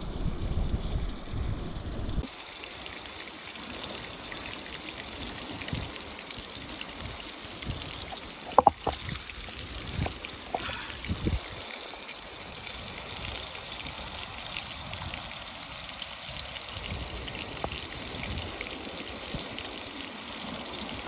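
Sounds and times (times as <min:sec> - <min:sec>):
low rumble: 0:00.0 - 0:02.3
fish sizzling in hot oil: 0:02.2 - 0:21.0.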